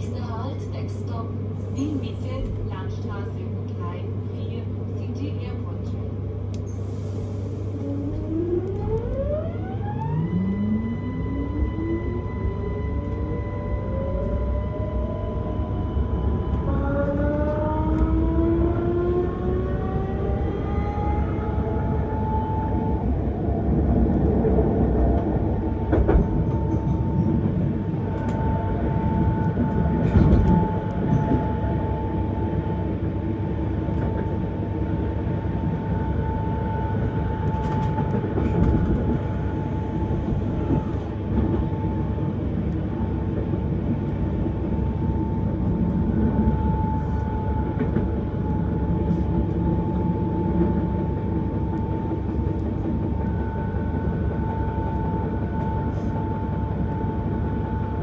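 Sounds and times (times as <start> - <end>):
train wheels rumbling on track: 0.0 - 10.6, 11.6 - 58.0
high-pitched train whine: 6.7 - 58.0
track knocks: 25.8 - 27.3.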